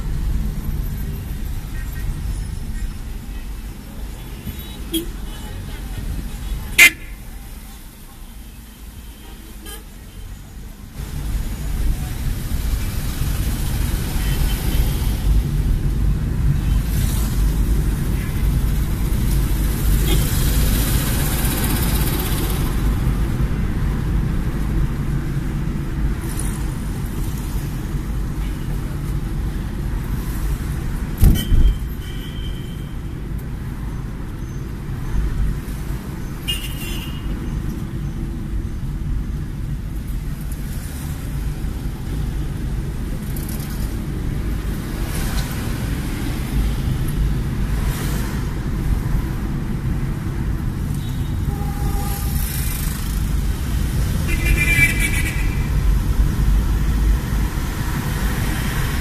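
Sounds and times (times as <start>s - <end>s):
car engine and road noise: 0.0s - 59.0s
thump: 31.2s - 31.8s.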